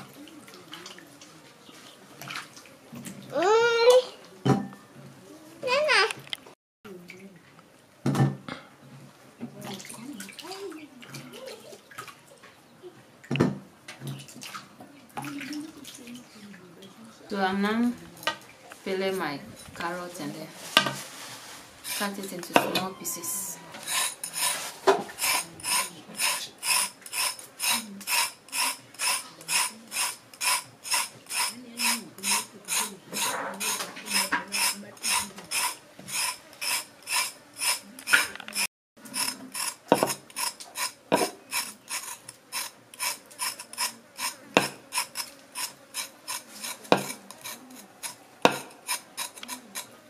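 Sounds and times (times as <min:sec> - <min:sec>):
knife scraping carrot: 0:21.8 - 0:50.0.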